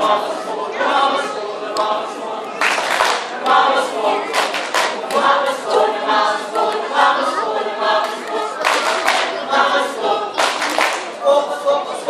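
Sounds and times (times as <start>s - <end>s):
mixed choir singing: 0.0s - 12.0s.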